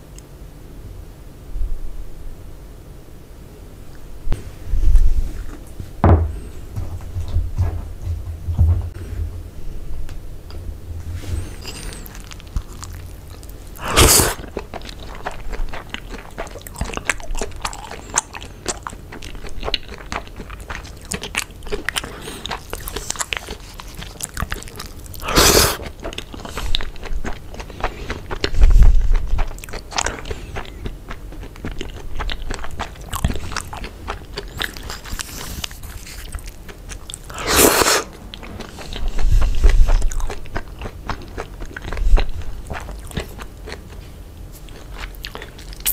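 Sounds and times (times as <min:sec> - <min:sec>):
dull low bumps: 0:04.8 - 0:11.3
close chewing with mouth clicks: 0:11.4 - 0:45.9.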